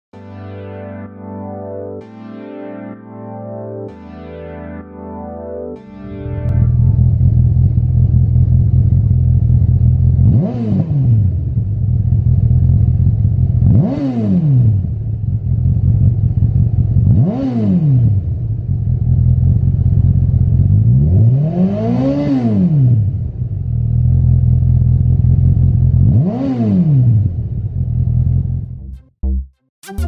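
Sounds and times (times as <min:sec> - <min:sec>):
motorcycle engine idling and revving: 0:06.5 - 0:28.8.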